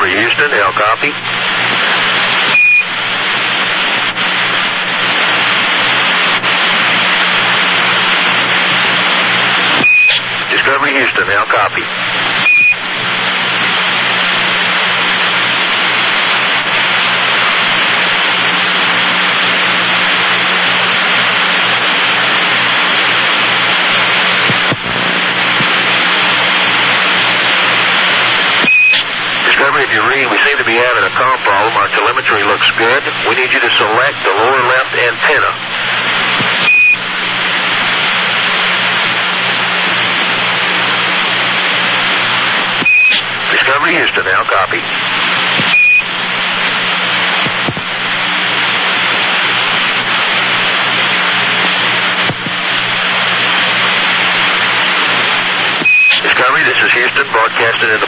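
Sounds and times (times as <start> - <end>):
low hum: 0.0 - 58.0
radio static hiss: 0.0 - 58.0
short high beep: 2.6 - 2.9, 9.8 - 10.2, 12.4 - 12.8, 28.6 - 29.0, 36.6 - 37.0, 42.8 - 43.2, 45.7 - 46.1, 55.8 - 56.2.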